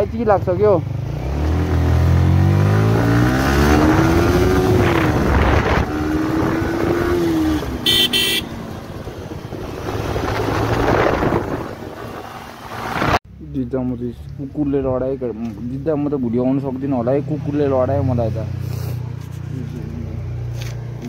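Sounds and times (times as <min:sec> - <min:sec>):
motorcycle engine revving: 0:00.0 - 0:13.2
wind rushing: 0:03.6 - 0:07.8, 0:08.7 - 0:13.2.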